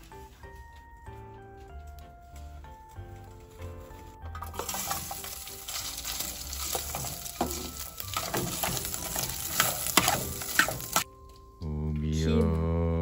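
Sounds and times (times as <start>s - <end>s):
meat frying in a pot: 4.4s - 11.1s
metal spoon clinking against pot: 4.4s - 11.1s.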